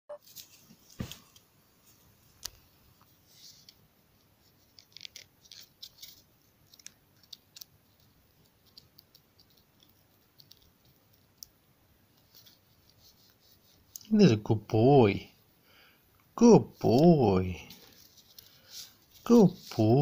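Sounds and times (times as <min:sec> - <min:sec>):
kitten biting and clawing a stick: 0:03.5 - 0:14.1.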